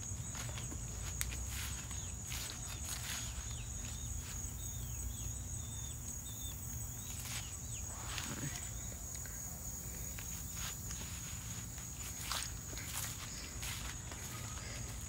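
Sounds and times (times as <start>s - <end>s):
footsteps and rustling: 0.0s - 4.9s, 6.7s - 15.0s
high insect drone: 0.0s - 15.0s
bird chirping: 1.6s - 9.0s.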